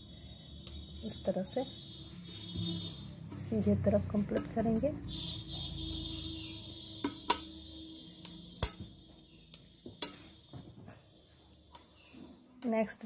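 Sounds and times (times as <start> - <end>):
metal knitting needles clicking: 7.0 - 7.5.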